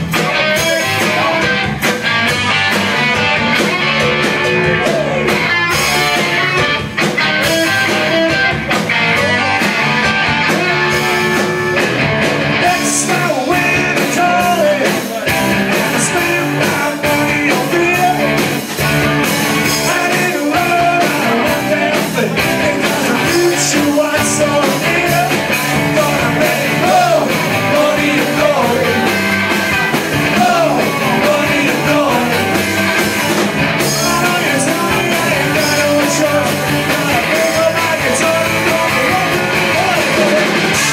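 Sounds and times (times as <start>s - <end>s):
rock band playing live: 0.0s - 40.9s
person singing: 12.6s - 18.5s, 19.6s - 29.2s, 30.3s - 32.6s, 33.8s - 40.9s.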